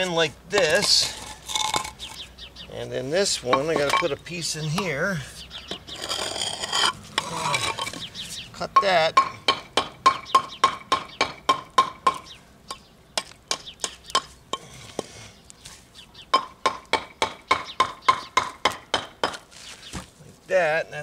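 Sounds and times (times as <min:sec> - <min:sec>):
hammer striking concrete block: 0:08.8 - 0:12.2, 0:16.4 - 0:19.4.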